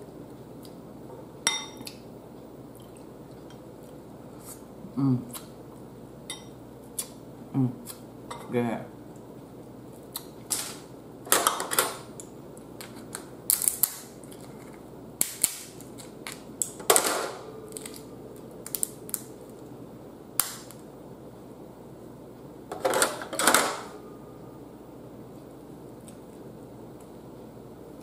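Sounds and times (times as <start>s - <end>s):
crab shell cracking: 12.8s - 16.8s, 17.7s - 19.6s.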